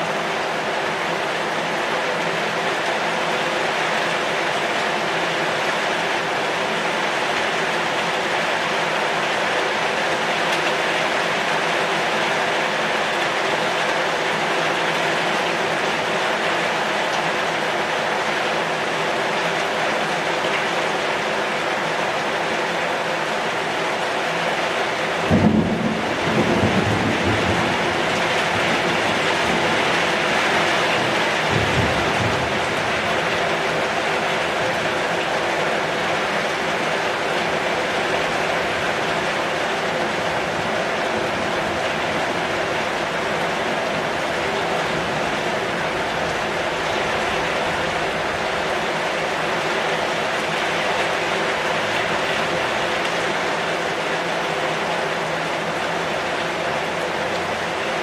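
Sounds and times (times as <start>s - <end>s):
heavy rain on a metal roof: 0.0s - 58.0s
rumble of thunder: 25.3s - 30.0s, 31.0s - 33.0s.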